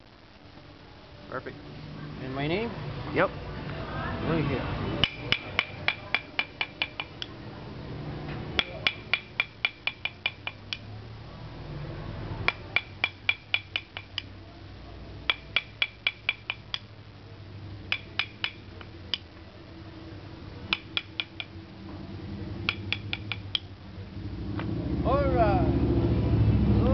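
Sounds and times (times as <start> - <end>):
mallet tapping chisel: 5.0 - 7.3, 8.6 - 10.8, 12.4 - 14.3, 15.2 - 16.9, 17.9 - 19.2, 20.7 - 21.6, 22.7 - 23.7.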